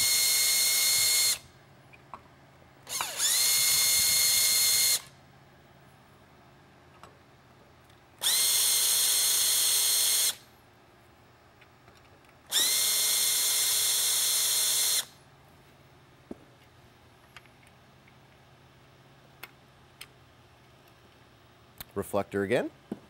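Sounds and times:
cordless drill whining: 0.0s - 1.4s, 2.9s - 5.1s, 8.2s - 10.4s, 12.5s - 15.1s.

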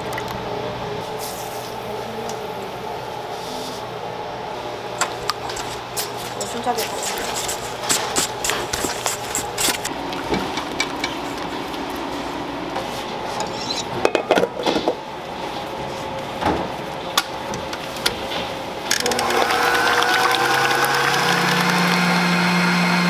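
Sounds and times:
stand mixer motor whipping: 18.9s - 23.0s.

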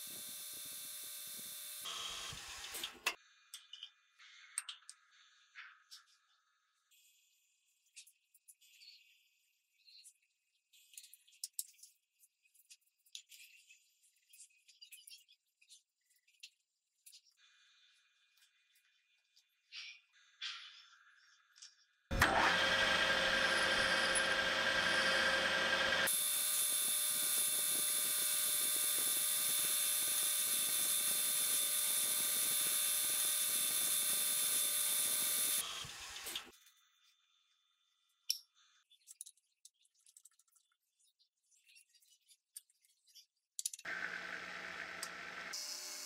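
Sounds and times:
metal lathe whining: 22.1s - 36.5s.

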